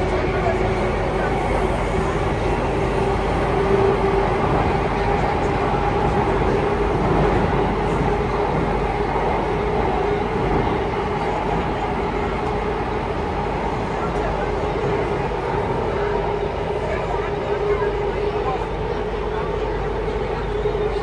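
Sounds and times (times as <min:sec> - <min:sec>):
train wheels rumbling on track: 0:00.0 - 0:21.0.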